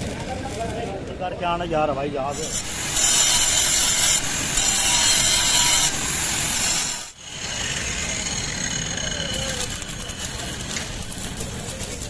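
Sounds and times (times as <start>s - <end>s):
arc welding crackling hiss: 2.3s - 7.2s
metal grinding hiss: 2.3s - 11.2s.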